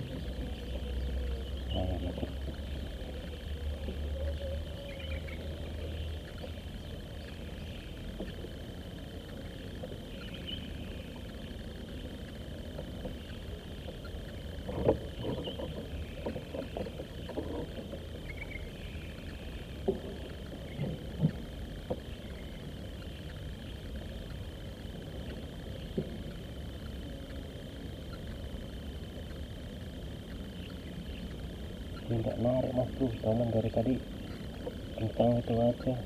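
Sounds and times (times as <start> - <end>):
faint high hum: 0.0 - 36.0.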